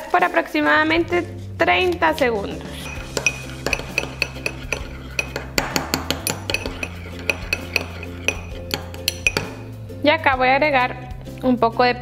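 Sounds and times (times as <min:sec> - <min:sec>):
metal spoon clinking in bowl: 0:02.8 - 0:09.7.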